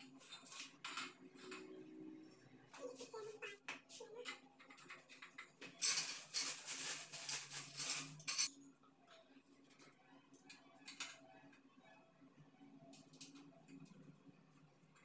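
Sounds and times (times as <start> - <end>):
parts rustling and clattering: 4.7 - 8.6.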